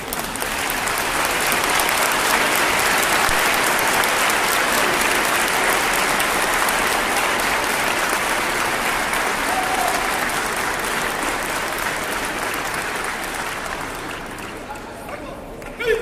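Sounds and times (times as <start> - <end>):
large audience applauding: 0.0 - 15.2.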